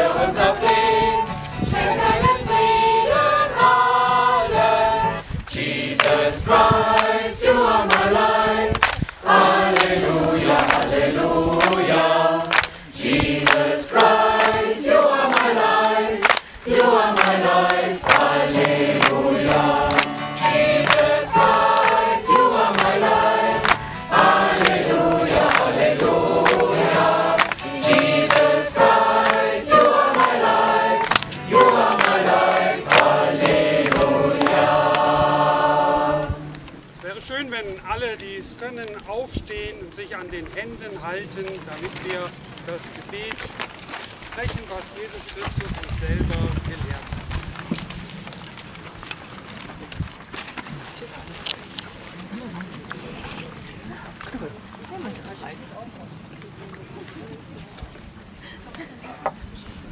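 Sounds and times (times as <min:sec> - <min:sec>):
choir singing a hymn: 0:00.0 - 0:36.9.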